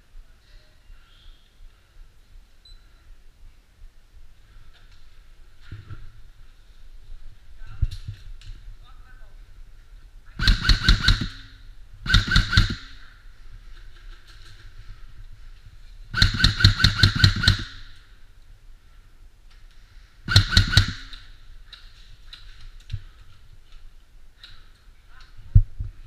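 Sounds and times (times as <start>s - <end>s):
airsoft rifle firing bursts: 10.4s - 13.0s, 16.1s - 18.0s, 20.3s - 21.4s.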